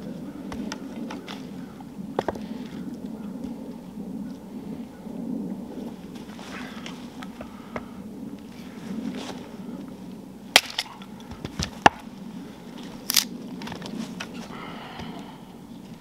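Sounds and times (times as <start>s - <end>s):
axe chopping firewood: 10.5s - 12.0s.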